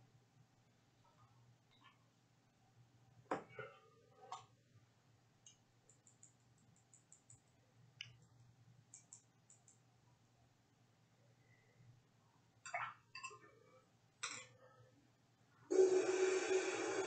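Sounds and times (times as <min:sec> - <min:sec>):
faint room hum: 0:00.0 - 0:17.0
soft clicks: 0:05.4 - 0:09.9.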